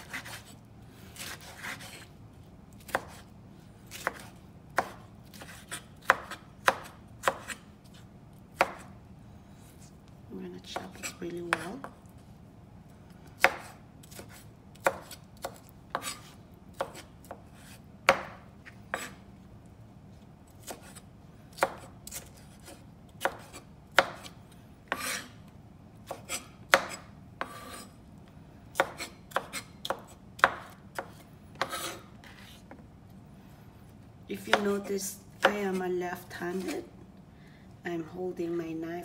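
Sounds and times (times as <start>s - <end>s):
knife chopping on wooden board: 0.0s - 0.5s, 1.2s - 2.1s, 2.8s - 3.2s, 3.9s - 8.0s, 8.6s - 8.9s, 10.8s - 12.0s, 13.4s - 19.2s, 20.6s - 21.0s, 21.6s - 25.3s, 26.0s - 27.9s, 28.7s - 32.8s.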